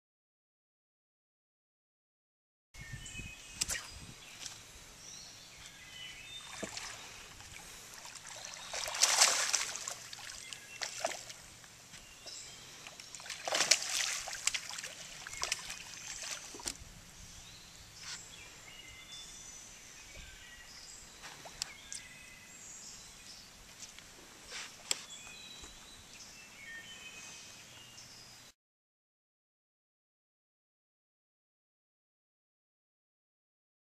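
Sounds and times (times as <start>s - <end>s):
songbird chirps: 2.8s - 28.6s
fish splashing at water surface: 6.4s - 11.4s, 12.9s - 16.8s.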